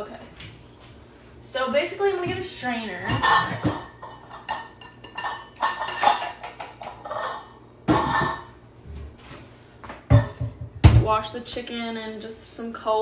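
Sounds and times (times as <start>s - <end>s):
metal kitchenware clattering: 3.0s - 8.5s.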